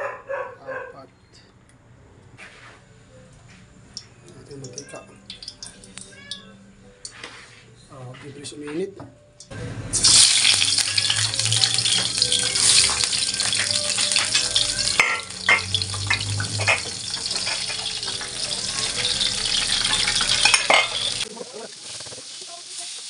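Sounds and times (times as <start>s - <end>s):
oil popping and crackling: 4.6s - 6.4s, 9.9s - 23.0s
fish sizzling in hot oil: 4.7s - 5.9s, 9.9s - 23.0s.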